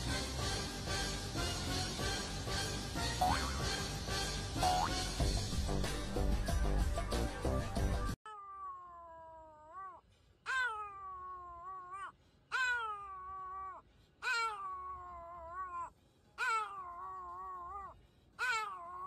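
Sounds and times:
dog howling: 8.4s - 19.0s.

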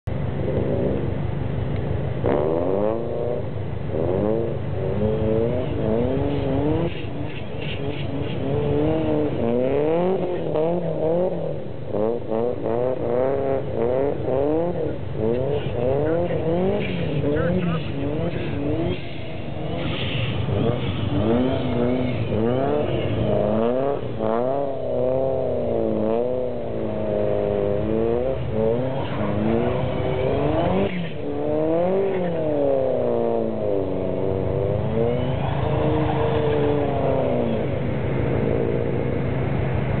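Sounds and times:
car engine revving: 0.1s - 40.0s.

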